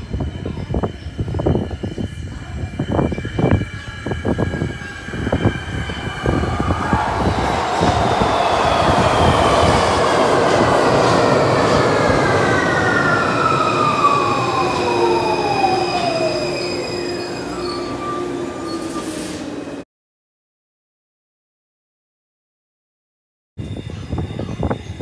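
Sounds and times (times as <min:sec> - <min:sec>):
train wheels rumbling on rails: 0:00.0 - 0:19.8.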